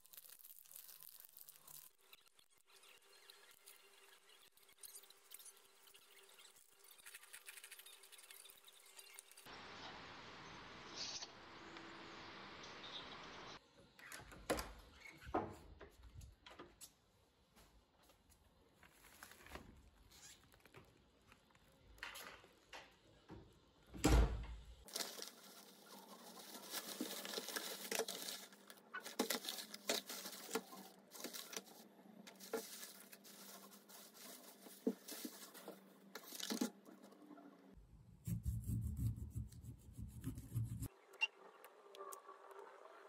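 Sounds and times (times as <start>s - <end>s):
plastic bag rustling: 24.9s - 36.8s.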